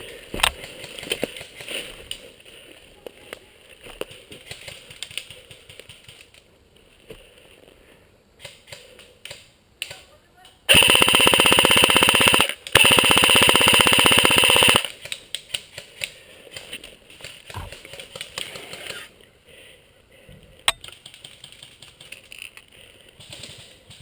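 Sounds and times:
airsoft rifle bursts: 10.7s - 15.8s.

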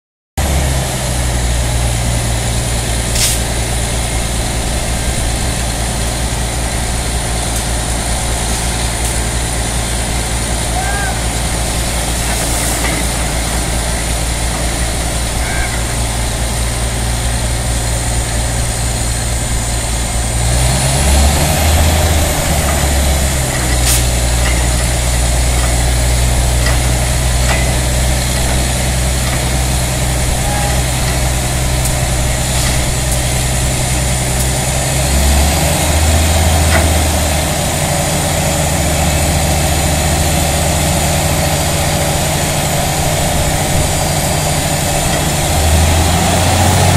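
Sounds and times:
heavy diesel engines running: 0.4s - 46.9s
air and water hissing: 3.1s - 3.6s, 11.6s - 15.4s, 21.6s - 24.3s, 27.3s - 34.6s.

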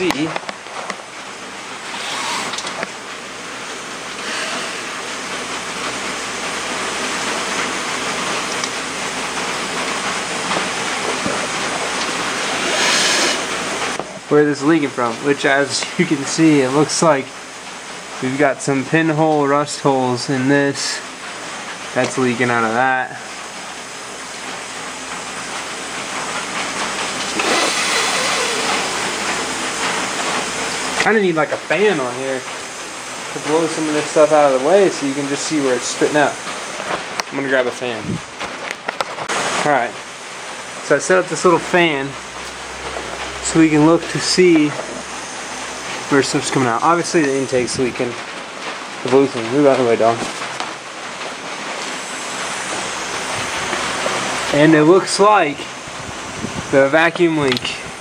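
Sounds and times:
compressed air hissing: 4.2s - 5.0s, 12.3s - 14.0s, 27.3s - 29.2s.

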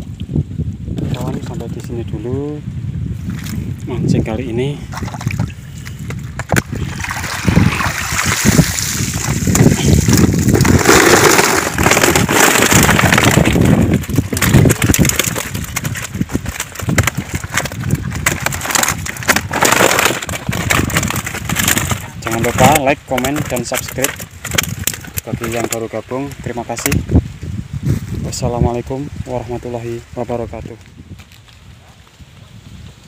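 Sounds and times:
water sloshing and splashing: 4.9s - 22.0s
rustling: 7.0s - 27.0s.

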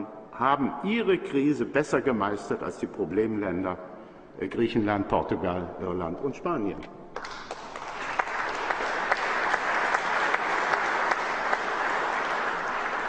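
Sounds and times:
audience applauding: 7.2s - 13.0s.

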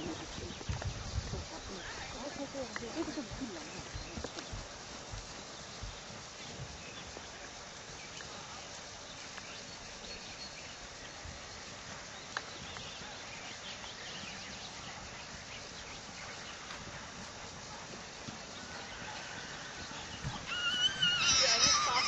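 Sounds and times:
muffled hoofbeats on sand: 0.0s - 22.0s
outdoor background hiss: 0.0s - 22.0s.

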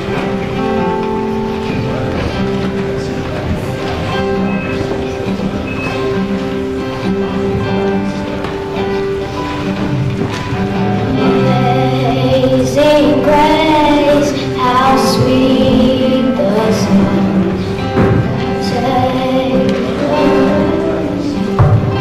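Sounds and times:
instrumental accompaniment: 0.0s - 22.0s
group singing a hymn: 11.1s - 22.0s.

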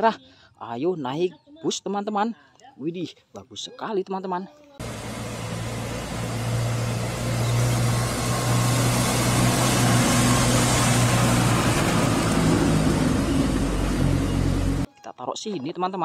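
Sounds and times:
bus engine humming: 4.8s - 14.9s
road and tyre noise: 4.8s - 14.9s.

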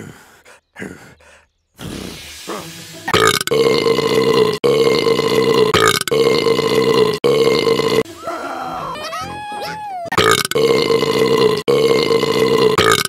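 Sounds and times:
loud long burp: 3.1s - 8.0s, 10.2s - 13.0s.

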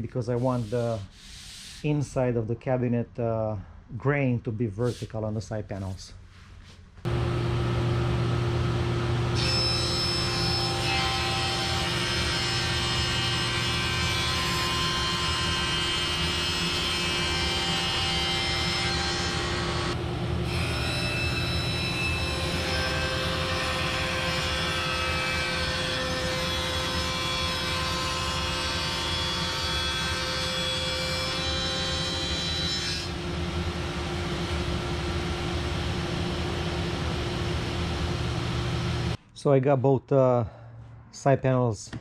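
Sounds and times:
panel saw cutting plywood: 9.2s - 34.0s.

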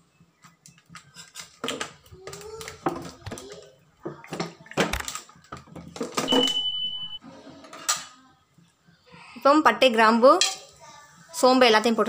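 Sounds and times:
high beep: 6.3s - 7.2s.

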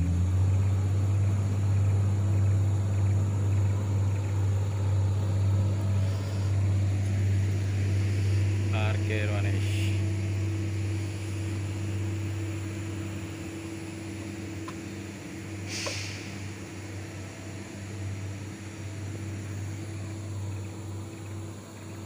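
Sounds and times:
diesel truck engine idling: 0.0s - 22.0s
short hiss: 15.6s - 16.4s.

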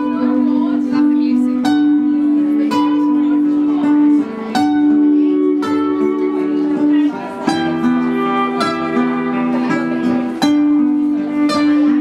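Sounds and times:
plucked string instrument music: 0.0s - 12.0s.

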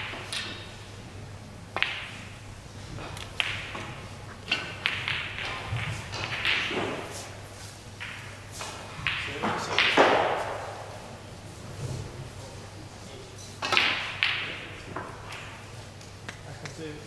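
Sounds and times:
snooker balls clicking: 0.0s - 0.8s, 1.7s - 11.0s, 13.6s - 16.8s.

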